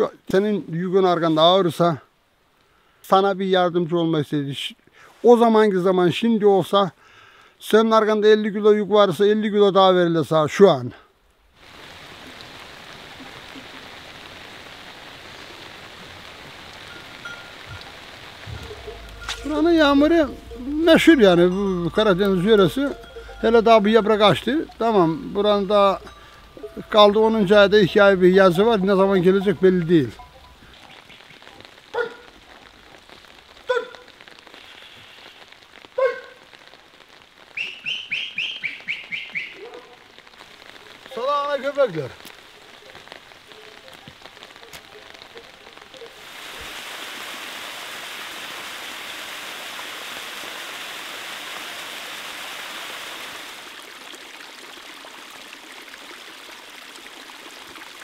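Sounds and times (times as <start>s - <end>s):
steady rain falling: 0.0s - 58.0s
high-pitched calls: 17.0s - 31.7s
dog barking: 31.9s - 32.4s, 33.7s - 34.1s, 36.0s - 36.4s, 39.5s - 40.1s.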